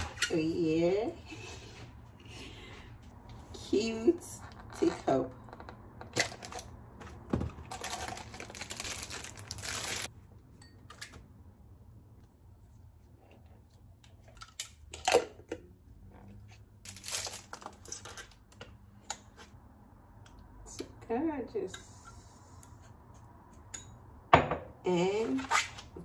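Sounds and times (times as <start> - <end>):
plastic wrapping crinkling: 7.6 - 10.1, 16.9 - 18.2.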